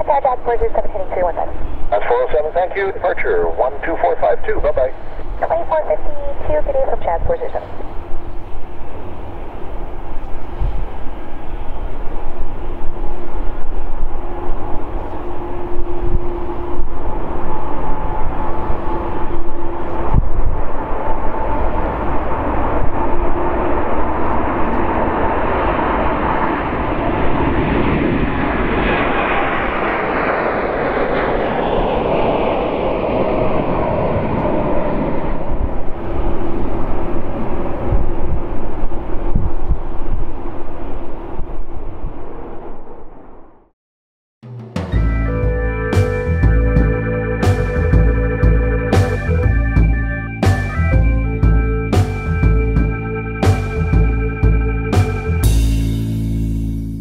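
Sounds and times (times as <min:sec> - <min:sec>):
jet engines whining while taxiing: 0:00.0 - 0:43.6.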